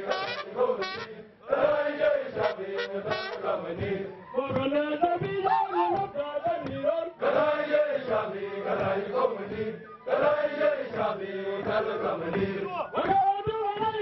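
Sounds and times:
men chanting together: 0.0 - 4.2, 6.4 - 13.2.

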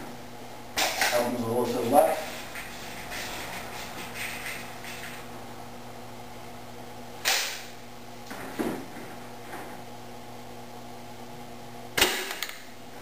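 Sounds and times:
steady low hum: 0.0 - 13.0
air rifle shot: 7.2 - 7.7.

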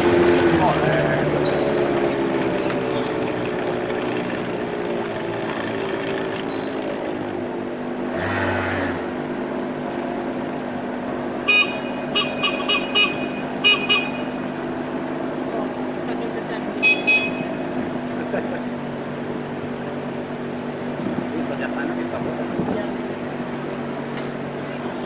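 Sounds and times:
street traffic: 0.0 - 25.0
vehicle horn short beeps: 11.5 - 14.5, 16.8 - 17.7.

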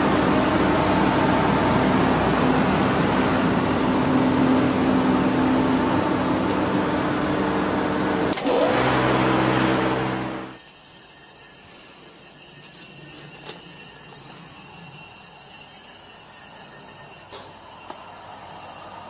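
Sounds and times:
chiller mechanical hum: 0.0 - 19.0.

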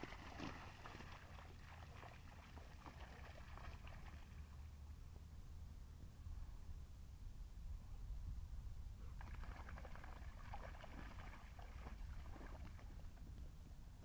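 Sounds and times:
dogs splashing through puddle: 0.0 - 4.7, 9.2 - 13.2.

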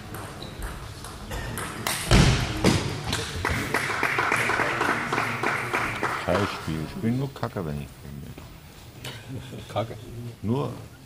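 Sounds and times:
spectators clapping: 3.0 - 6.9.

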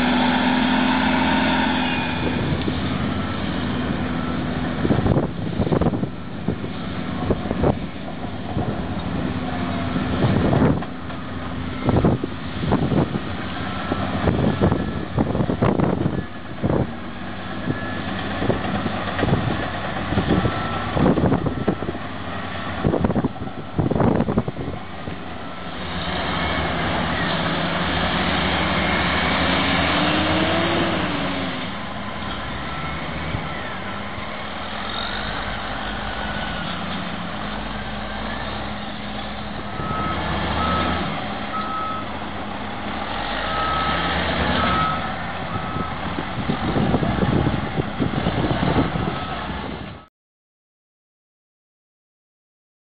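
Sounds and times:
diesel engines running: 0.0 - 50.1
reversing alarm beeping: 39.7 - 42.2, 43.4 - 46.0.

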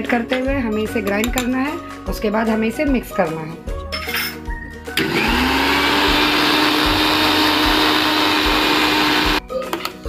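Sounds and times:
mixer grinder motor running: 5.0 - 9.4.

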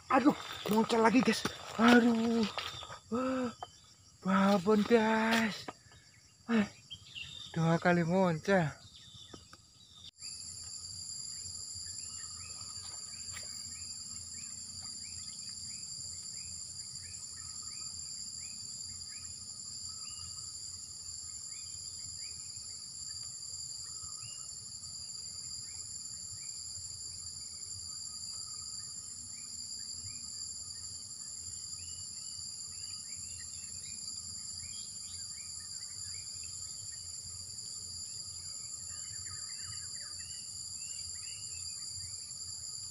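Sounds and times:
insects droning: 0.0 - 42.9
bird chirps: 5.8 - 7.7.

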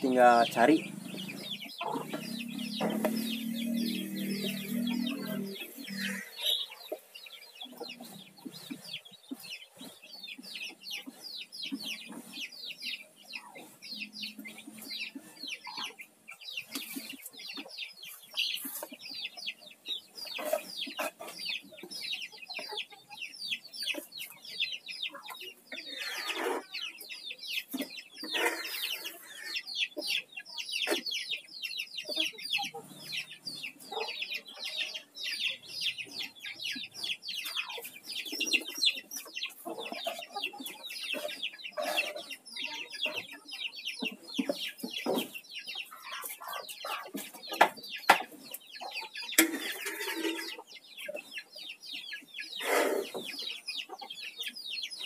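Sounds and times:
chickens peeping and clucking: 0.0 - 55.0.

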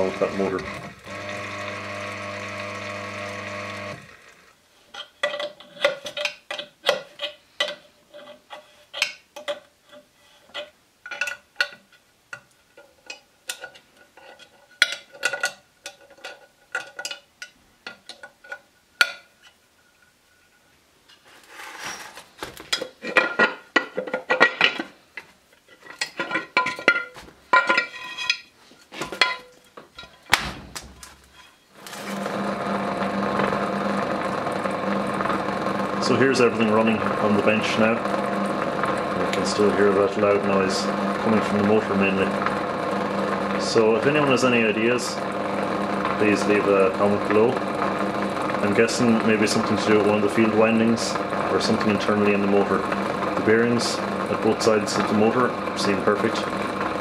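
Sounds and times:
electric motor running loudly: 0.0 - 4.5, 31.9 - 57.0.

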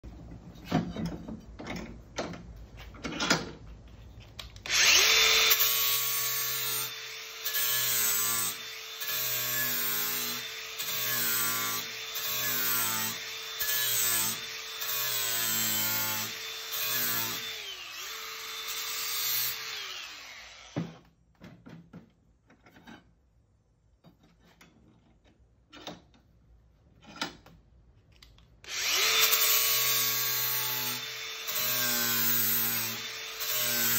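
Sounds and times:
angle grinder grinding steel: 4.7 - 21.0, 28.7 - 33.9.

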